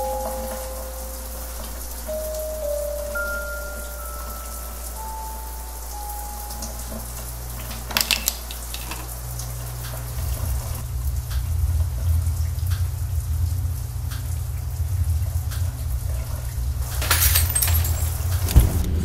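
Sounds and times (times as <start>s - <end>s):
low droning rumble: 9.0s - 19.0s
drip-like ticks: 11.0s - 16.5s.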